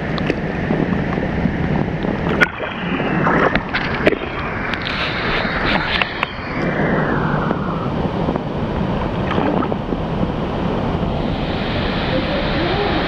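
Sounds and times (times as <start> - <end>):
wind buffeting on microphone: 0.0 - 13.0
water sloshing: 2.1 - 5.1.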